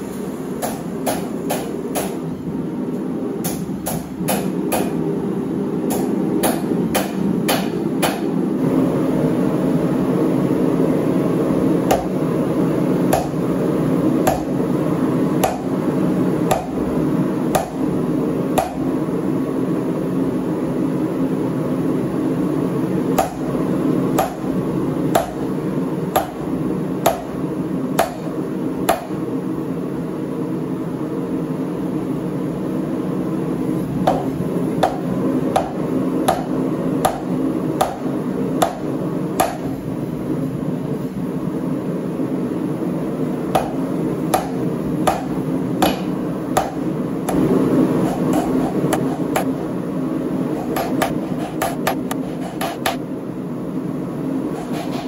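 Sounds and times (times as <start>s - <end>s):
hammer striking steel on anvil: 3.4s - 5.0s, 5.9s - 8.4s, 13.1s - 13.4s, 14.2s - 14.6s, 17.5s - 17.8s, 23.2s - 23.5s, 24.2s - 24.5s, 43.5s - 47.4s.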